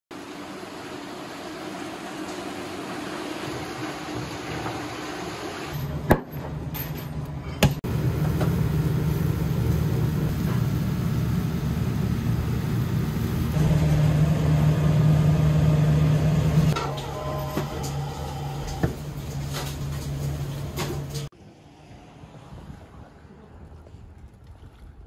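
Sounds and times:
low mechanical hum: 0:05.7 - 0:21.3.

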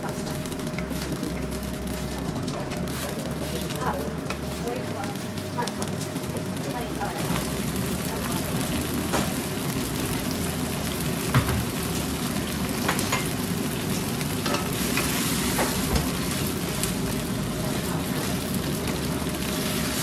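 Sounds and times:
food sizzling in hot oil: 0:00.0 - 0:20.0.

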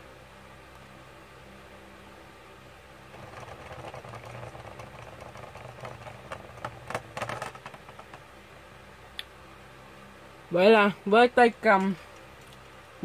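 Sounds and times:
spinning top scraping rattle: 0:03.1 - 0:08.3
top rim clacking on floor: 0:03.2 - 0:08.3.

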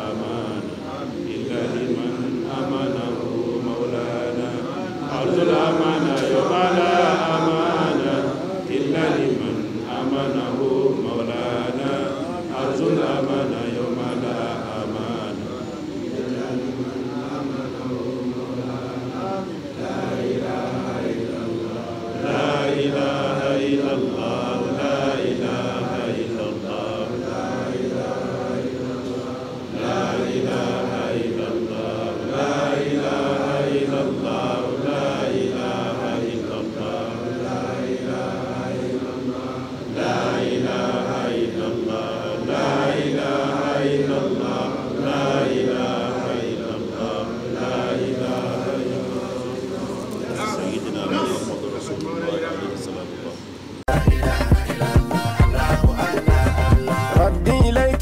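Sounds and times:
congregation chanting in unison: 0:00.0 - 0:58.0.

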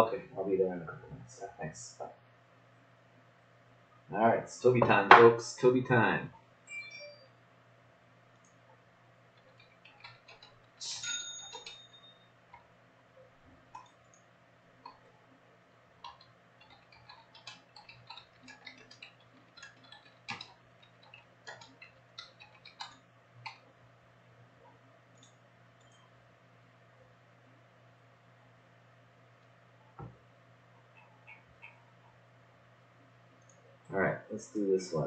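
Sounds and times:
mouse and keyboard clicking: 0:09.4 - 0:10.8, 0:16.0 - 0:23.6, 0:30.9 - 0:32.0
short ringing clink: 0:10.8 - 0:12.3.

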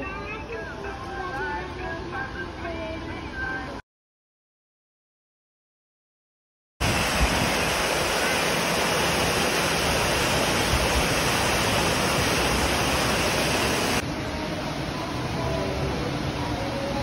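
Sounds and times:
waterfall pouring into pool: 0:06.8 - 0:14.0.

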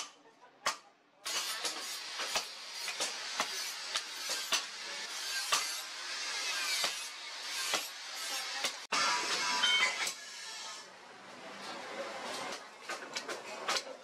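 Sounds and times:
hammer striking hot steel on anvil: 0:01.3 - 0:08.8.

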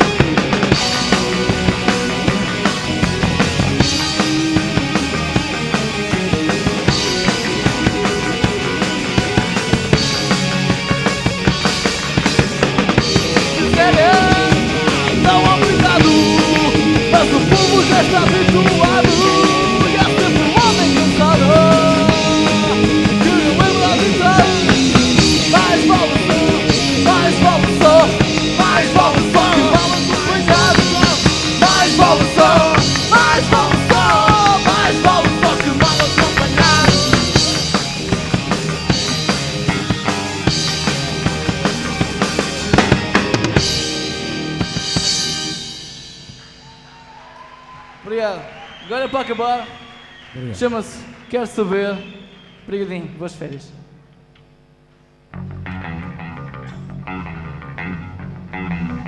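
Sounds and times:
rock band playing live: 0:00.0 - 0:47.7, 0:55.3 - 0:59.0.

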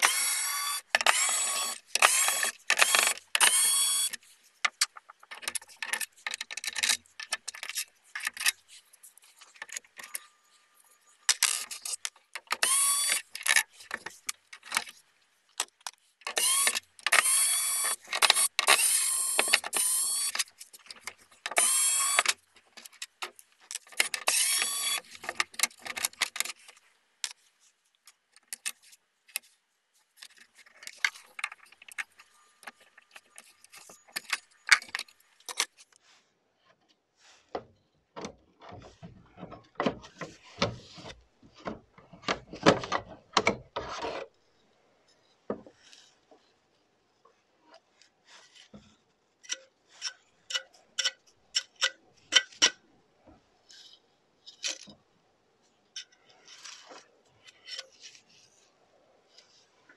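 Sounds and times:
electric screwdriver whirring: 0:00.0 - 0:04.2, 0:12.6 - 0:13.2, 0:16.3 - 0:20.4, 0:21.5 - 0:22.4, 0:24.0 - 0:25.1.

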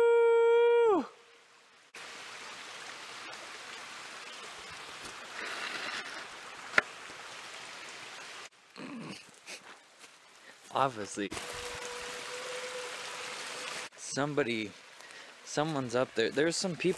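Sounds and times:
person howling: 0:00.0 - 0:01.2
creek running: 0:01.2 - 0:16.9.

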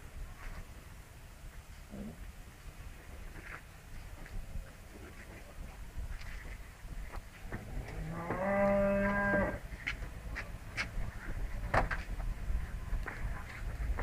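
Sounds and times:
cow mooing: 0:07.8 - 0:09.6.

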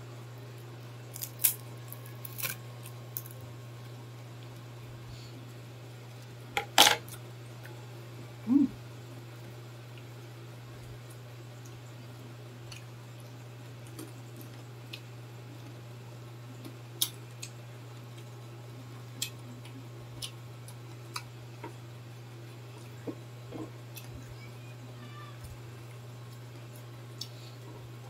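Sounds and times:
low electrical hum: 0:00.0 - 0:28.0
chewing and crunching food: 0:01.0 - 0:04.7, 0:12.5 - 0:21.8, 0:25.4 - 0:28.0.

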